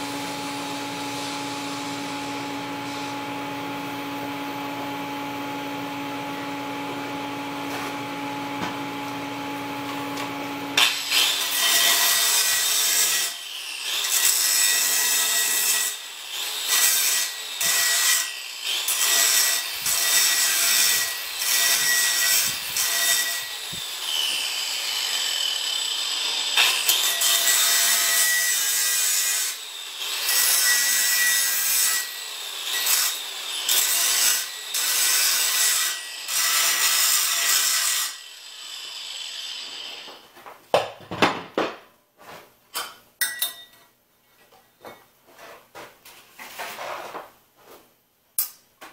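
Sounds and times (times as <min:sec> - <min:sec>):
angle grinder grinding metal pipe: 0:09.9 - 0:40.2.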